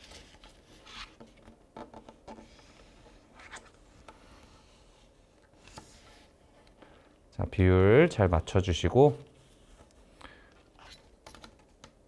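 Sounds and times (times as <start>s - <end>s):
paper rustling and scraping: 0.0s - 1.5s.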